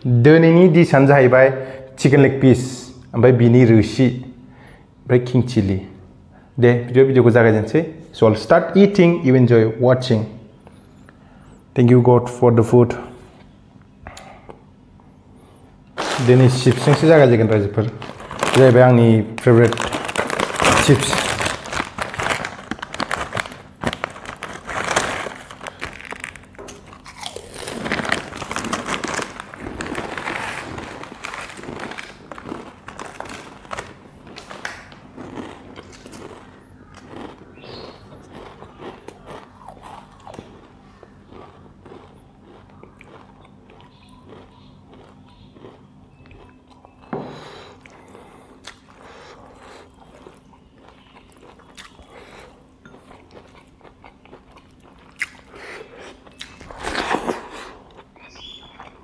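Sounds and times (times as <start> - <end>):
crunching and chewing chips: 15.4 - 59.0
chip bag crinkling: 16.0 - 40.7, 53.1 - 58.8.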